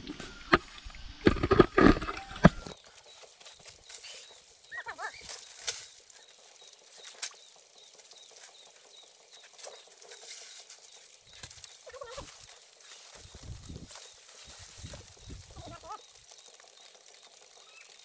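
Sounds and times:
warbling call: 15.4s - 16.0s.

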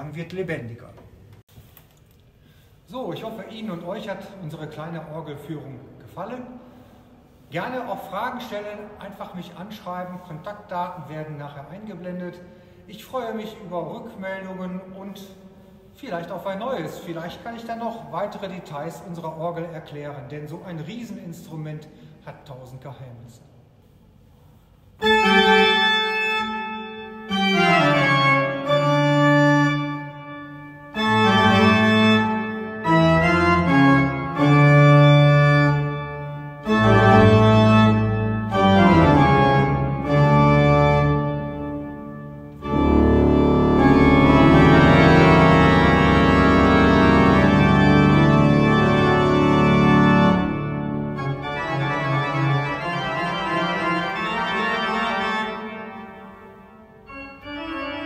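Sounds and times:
pipe organ playing chords: 24.8s - 58.0s.

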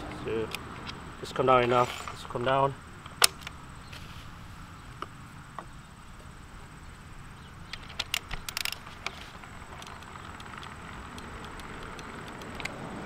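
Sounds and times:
crossbow crank clicking: 7.7s - 12.8s.

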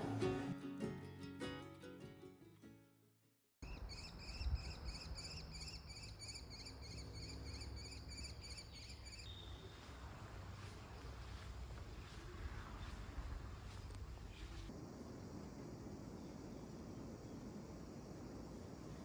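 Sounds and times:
crickets chirping: 3.6s - 19.0s
faint hiss: 9.8s - 19.0s.

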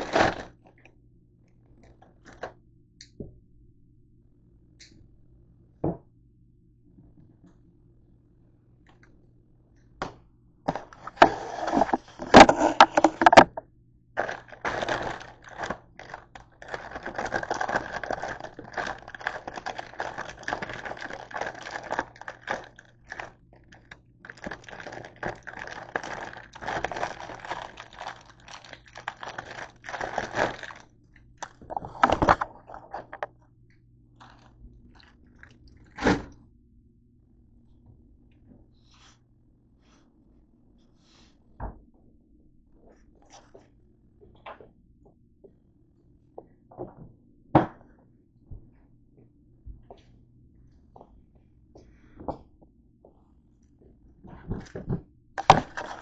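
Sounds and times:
plastic bag crinkling: 0.0s - 0.6s, 10.7s - 13.6s, 14.2s - 33.3s, 34.2s - 35.9s, 55.4s - 56.0s.

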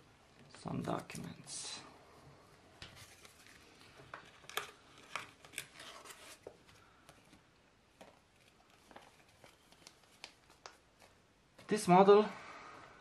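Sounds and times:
paper and plastic sleeve rustling: 2.8s - 7.4s, 8.0s - 11.8s.

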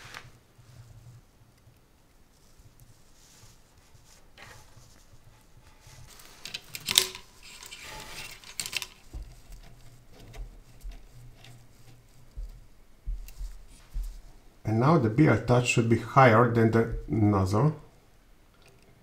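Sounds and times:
rustling handling noise: 0.0s - 14.6s
low thumps: 12.3s - 14.5s, 16.7s - 17.4s.

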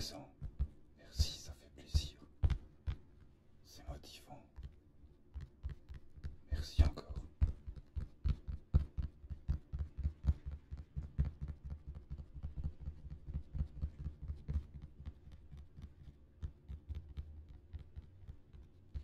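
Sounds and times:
fingertips tapping on a ball: 0.0s - 3.3s, 4.4s - 19.0s.

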